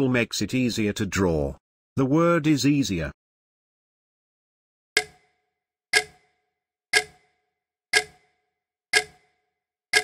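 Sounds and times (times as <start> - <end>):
clock ticking: 5.0 - 5.4, 6.0 - 10.0.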